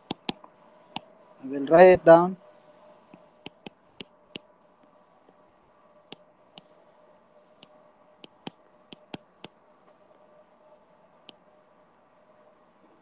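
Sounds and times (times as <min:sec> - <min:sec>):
stylus tapping on screen: 0:00.0 - 0:01.1, 0:03.1 - 0:05.4, 0:06.1 - 0:06.7, 0:07.6 - 0:09.6
faint hum: 0:00.0 - 0:13.0.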